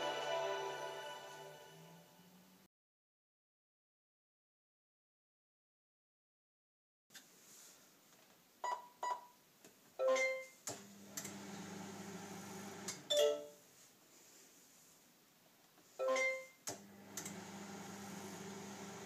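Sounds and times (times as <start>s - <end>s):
microwave oven humming: 10.8s - 13.1s, 16.8s - 19.0s.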